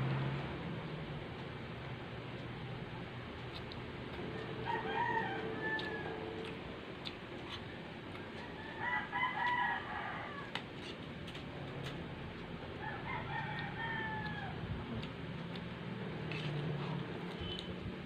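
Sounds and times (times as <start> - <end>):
rooster crowing: 4.3 - 6.6, 8.4 - 10.6, 12.8 - 14.7.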